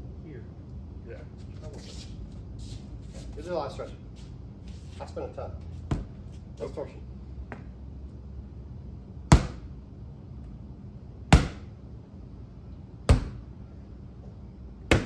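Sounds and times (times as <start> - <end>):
practice sword striking target: 9.3 - 9.7, 11.3 - 11.7, 13.1 - 13.4.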